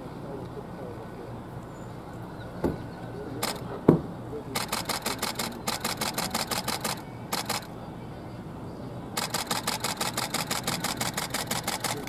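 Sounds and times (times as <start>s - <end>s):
camera shutter burst: 3.4s - 3.6s, 4.6s - 7.7s, 9.2s - 12.0s.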